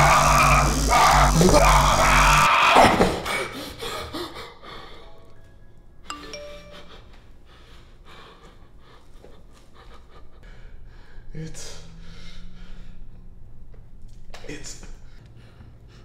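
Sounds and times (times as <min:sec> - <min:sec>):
man screaming: 0:00.0 - 0:02.6
ringing chime-like note: 0:06.1 - 0:07.2
faint breathing: 0:06.8 - 0:13.5.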